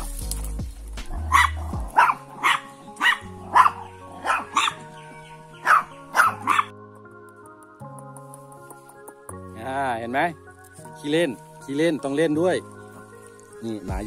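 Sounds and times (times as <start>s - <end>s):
dog barking: 1.2s - 4.9s, 5.6s - 6.7s.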